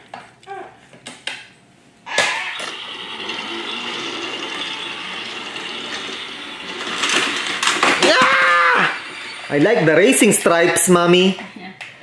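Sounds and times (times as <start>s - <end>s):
toy train motor whirring: 2.1s - 11.2s.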